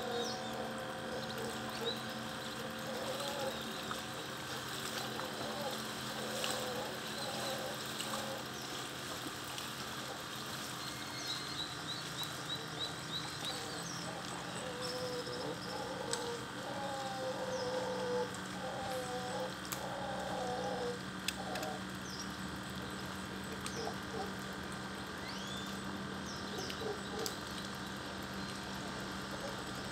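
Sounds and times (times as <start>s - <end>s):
howler monkey howling: 0.0s - 8.5s, 13.4s - 21.9s, 23.6s - 24.4s, 26.5s - 27.4s.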